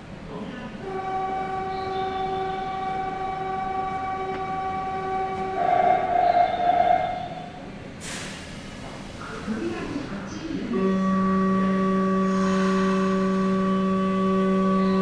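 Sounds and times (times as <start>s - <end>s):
train low rumble: 0.0s - 15.0s
train motor whine: 0.8s - 7.6s, 10.7s - 15.0s.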